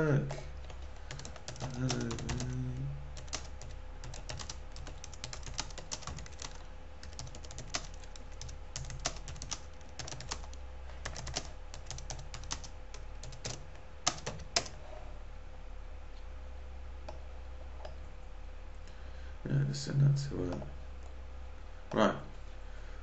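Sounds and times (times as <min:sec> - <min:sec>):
computer keyboard typing: 0:00.6 - 0:14.8.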